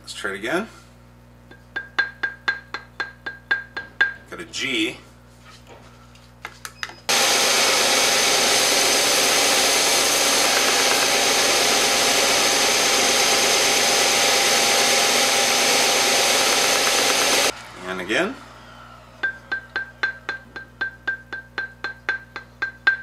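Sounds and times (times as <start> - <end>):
belt sander sanding wood: 7.1 - 18.4.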